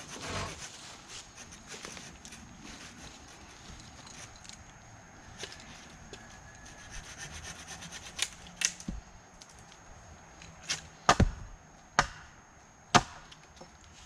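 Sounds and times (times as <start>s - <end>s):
wood and soil scraping: 0.0s - 9.8s
hatchet strikes into wood: 10.7s - 11.4s, 12.0s - 12.3s, 12.9s - 13.4s.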